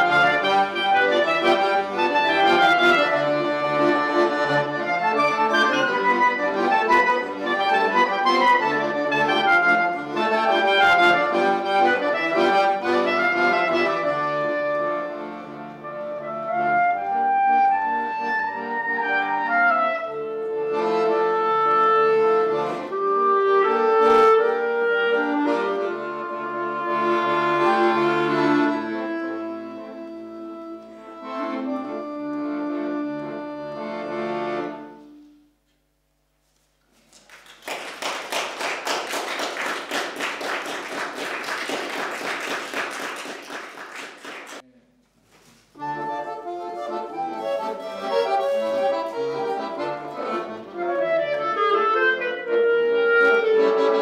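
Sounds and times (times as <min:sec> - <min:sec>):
clarinet and accordion duet: 0:00.0 - 0:36.9, 0:45.5 - 0:54.0
audience applauding: 0:36.9 - 0:44.6.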